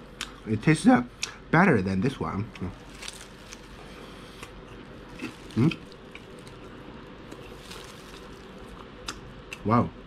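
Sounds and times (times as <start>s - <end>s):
man eating mouth clicks: 8.8s - 9.7s.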